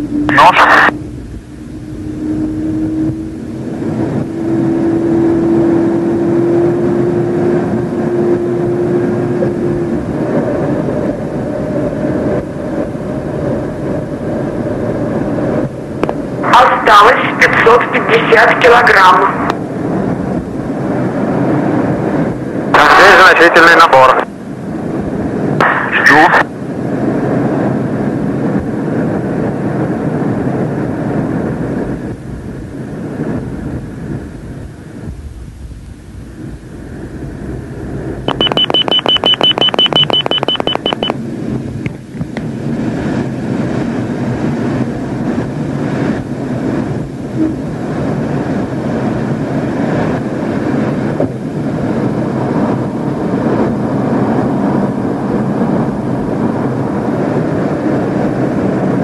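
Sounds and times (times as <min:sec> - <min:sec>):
jet engine and airflow noise: 0:00.0 - 0:59.0
rapid high-pitched warning beeps: 0:38.3 - 0:41.2.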